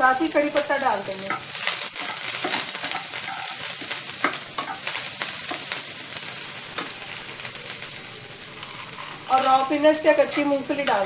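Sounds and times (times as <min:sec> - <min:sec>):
food sizzling in hot oil: 0:00.0 - 0:11.0
wooden spatula scraping pan: 0:02.0 - 0:04.9, 0:08.6 - 0:11.0.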